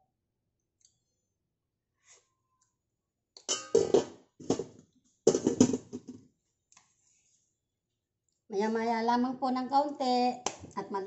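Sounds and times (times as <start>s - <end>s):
metal lid clanking on a pan: 3.5s - 4.6s, 5.3s - 6.0s.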